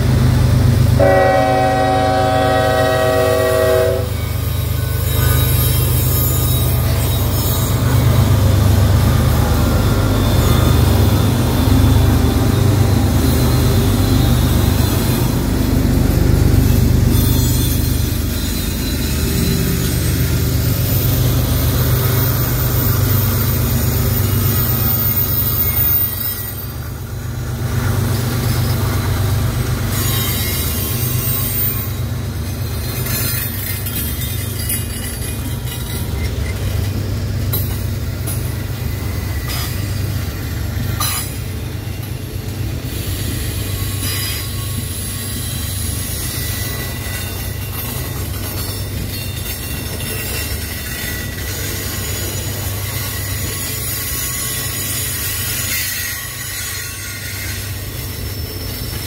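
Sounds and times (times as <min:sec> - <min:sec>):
freight train wheels rumbling: 0:00.0 - 0:59.0
wheel squeal: 0:04.1 - 0:15.9, 0:16.6 - 0:26.9, 0:29.8 - 0:37.0, 0:42.9 - 0:59.0.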